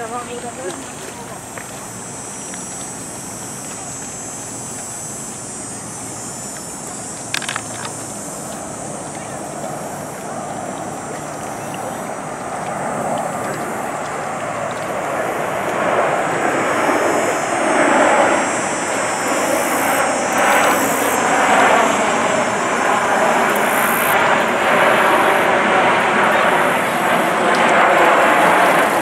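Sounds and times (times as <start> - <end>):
jet rumble overhead: 0.0 - 29.0.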